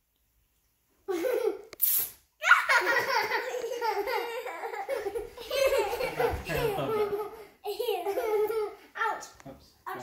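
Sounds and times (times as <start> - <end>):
young child laughing: 1.1 - 1.7, 2.4 - 8.9
aerosol can spraying: 1.8 - 2.2.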